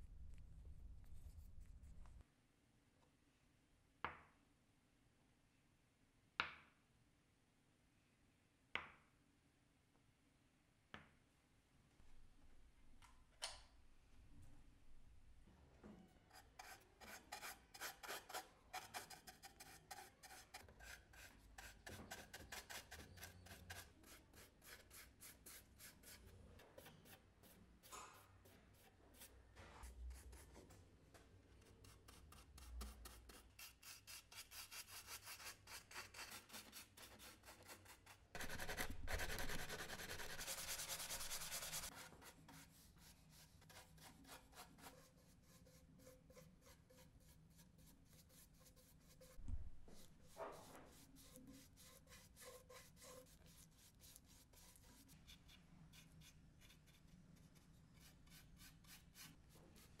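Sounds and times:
paintbrush swishing on wood: 48.1 - 55.5.

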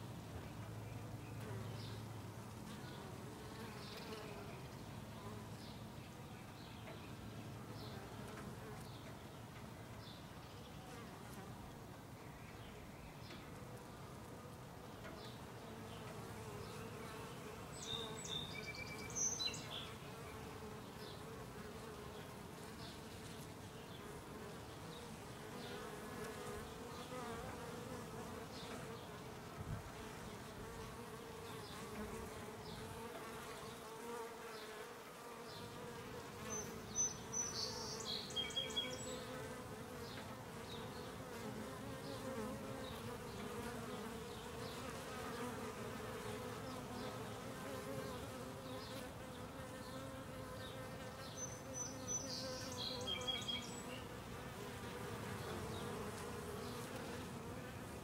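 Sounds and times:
bees buzzing: 15.7 - 58.0.

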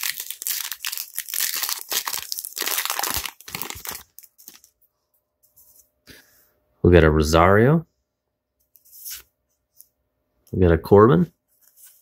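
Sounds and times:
wrapper tearing and crinkling: 0.0 - 4.7.

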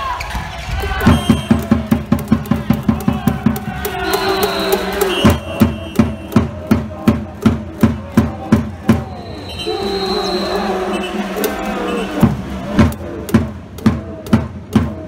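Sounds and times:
cheering-section drums beating: 0.0 - 15.0
steady held tones: 2.5 - 6.5.

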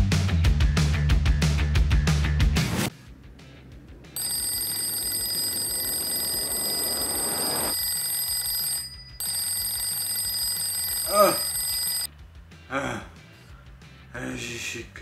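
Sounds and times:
electronic alarm ringing: 4.2 - 12.1.

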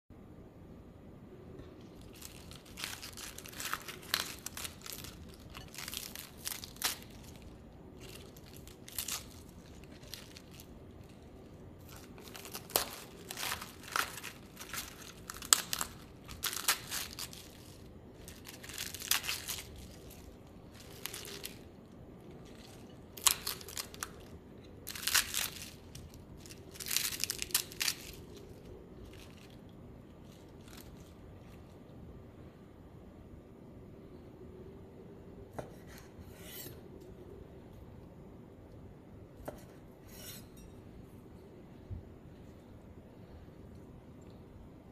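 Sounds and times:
lettuce leaves tearing: 2.0 - 31.8.

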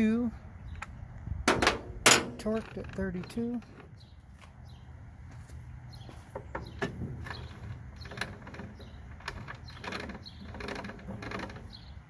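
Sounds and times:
metallic clicks and knocks: 1.5 - 4.0.

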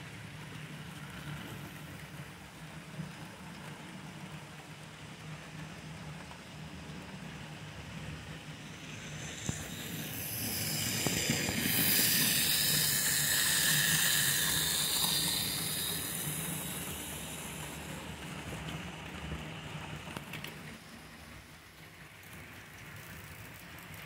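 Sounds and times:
model train high-pitched running: 0.0 - 24.0
low hum: 7.7 - 18.2.

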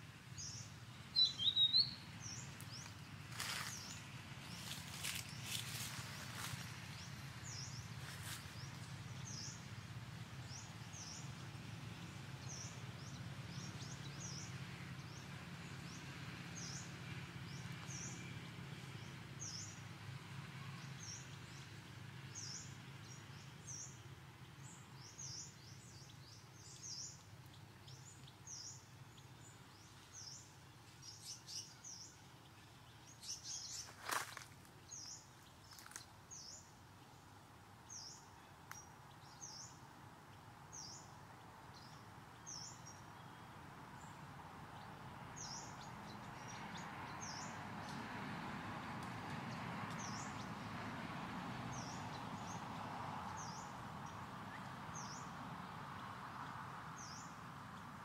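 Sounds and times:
faint background noise: 0.0 - 58.0
small bird high chirps: 0.4 - 2.4.

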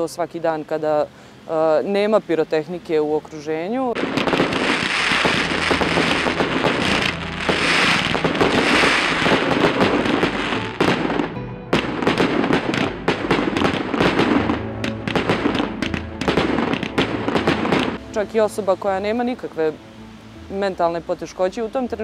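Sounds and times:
background music: 2.7 - 22.0
fireworks bursting and crackling: 3.9 - 18.0.

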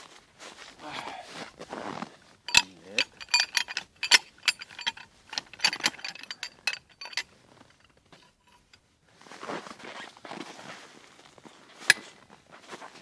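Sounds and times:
hand ratchet clicking: 2.5 - 7.3
socket clinking: 2.5 - 8.8.

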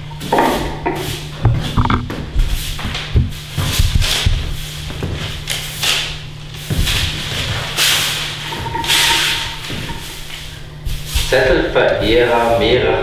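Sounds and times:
broom sweeping paper: 2.4 - 11.5, 12.2 - 12.7.

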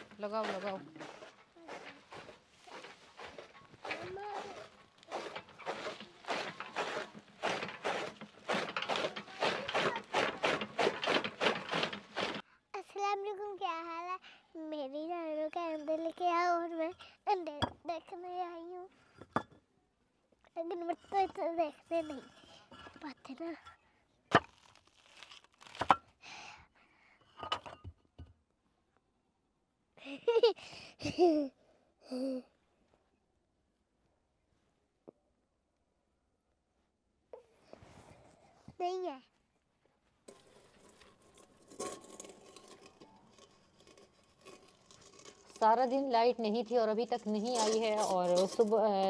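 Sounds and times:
brick scraping: 0.0 - 12.4, 20.9 - 23.2, 40.3 - 49.0
bricks clacking on bricks: 0.0 - 12.4, 40.3 - 46.0
dry leaves rustling and crunching: 24.6 - 25.8.

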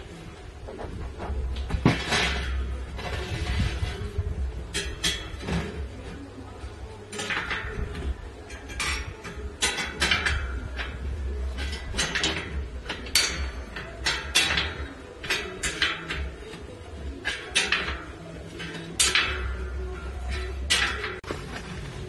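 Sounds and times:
tyre and bicycle rim clacking: 0.7 - 6.0, 7.1 - 22.0.

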